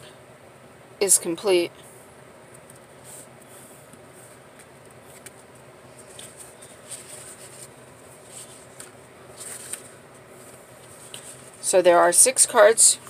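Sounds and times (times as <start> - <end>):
low steady background noise: 0.0 - 13.0
cards rustling and sliding: 2.6 - 11.6.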